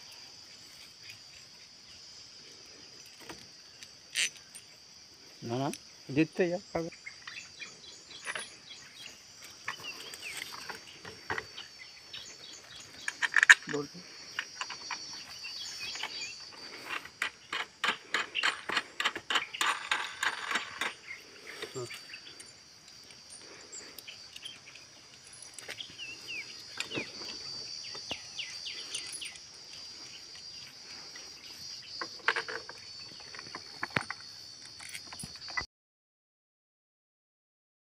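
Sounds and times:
insects droning: 0:00.0 - 0:35.7
sharp clicks and rustles: 0:12.6 - 0:30.4.

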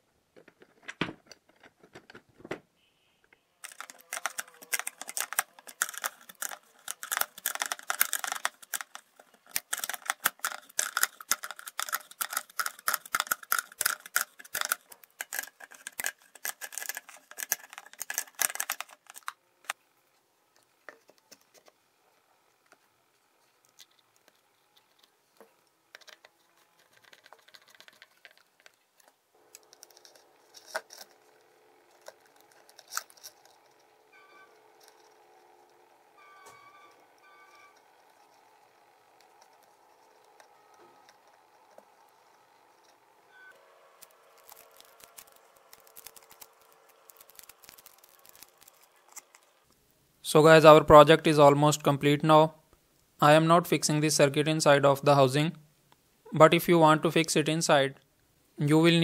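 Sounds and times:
faint hum: 0:01.9 - 0:58.7
metal parts and wrench clicking: 0:03.6 - 0:19.3, 0:23.7 - 0:35.8.

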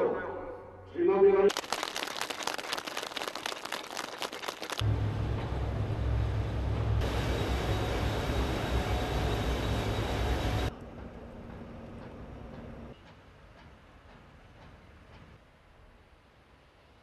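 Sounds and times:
heavy low machinery rumble: 0:04.8 - 0:12.9
machinery hum: 0:04.8 - 0:12.9.

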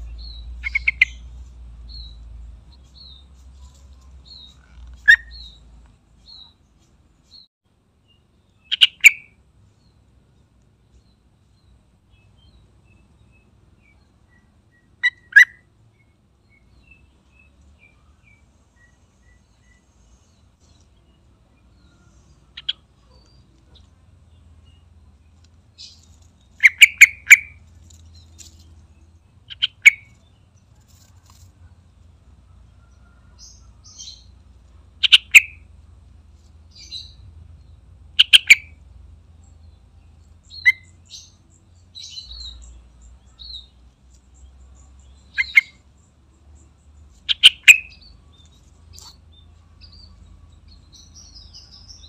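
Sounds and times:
bulbul chattering call: 0:00.0 - 0:01.3, 0:08.6 - 0:09.4, 0:26.6 - 0:27.6, 0:29.5 - 0:30.2, 0:35.0 - 0:35.7, 0:38.2 - 0:38.8, 0:45.1 - 0:45.8, 0:47.2 - 0:48.1
faint high bird chirps: 0:00.0 - 0:10.0, 0:10.9 - 0:31.8, 0:32.5 - 0:34.4, 0:39.4 - 0:52.0.

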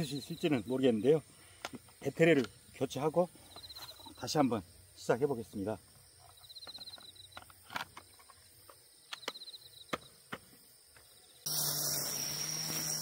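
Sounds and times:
insects trilling: 0:00.0 - 0:13.0
loud steady hiss: 0:11.4 - 0:13.0.

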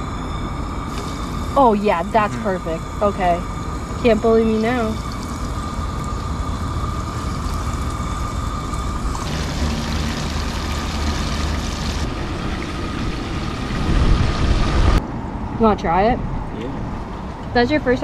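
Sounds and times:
fish sizzling in hot oil: 0:04.8 - 0:14.4.

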